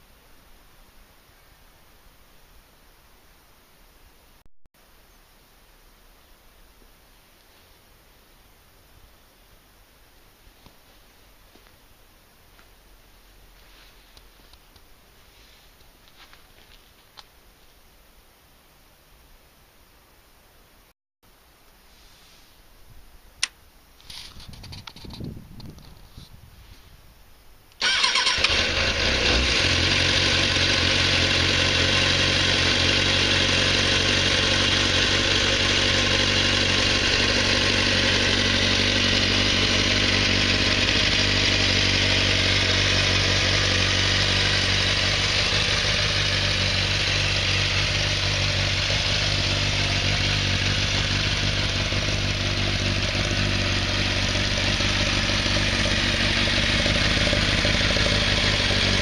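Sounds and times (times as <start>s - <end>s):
motorcycle engine starting and idling: 27.8s - 59.0s.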